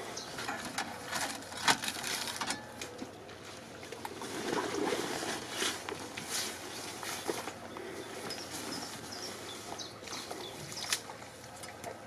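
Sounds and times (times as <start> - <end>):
gear clattering in car boot: 0.0 - 3.0.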